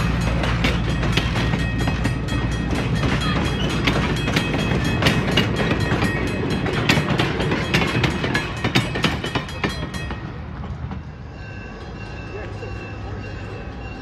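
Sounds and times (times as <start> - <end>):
train wheels clattering over rail joints: 0.0 - 11.1.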